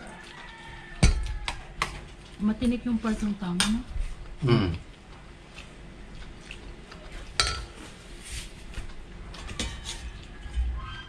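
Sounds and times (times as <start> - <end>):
tableware clinking and scraping: 7.4 - 7.9, 9.4 - 10.3.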